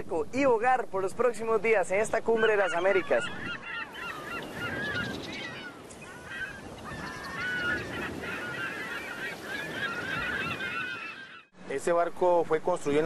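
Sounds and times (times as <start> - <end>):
flock of birds squawking: 2.2 - 11.5.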